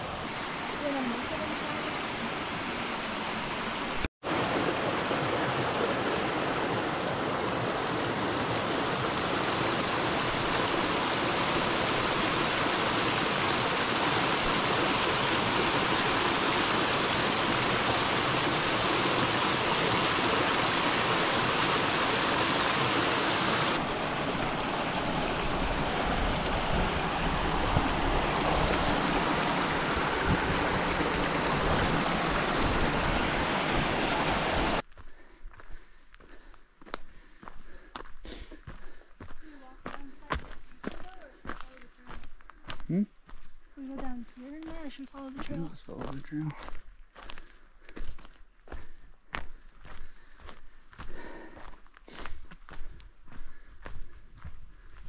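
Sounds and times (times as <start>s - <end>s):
creek splashing over rocks: 0.0s - 34.8s, 39.4s - 42.3s, 43.8s - 47.4s.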